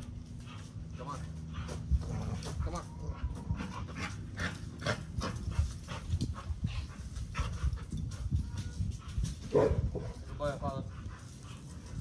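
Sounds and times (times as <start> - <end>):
dog panting: 0.0 - 12.0.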